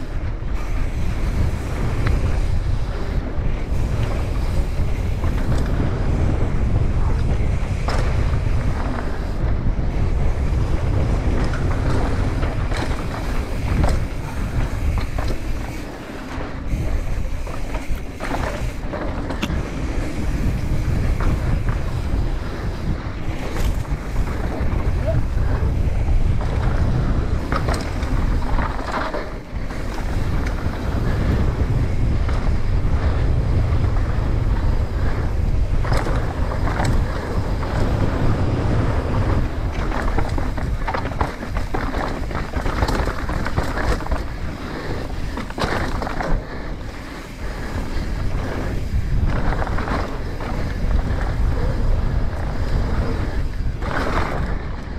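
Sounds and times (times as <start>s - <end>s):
bike clicking and rattling: 0.0s - 54.9s
tyres rolling on dirt: 0.0s - 54.9s
wind on microphone: 0.0s - 54.9s.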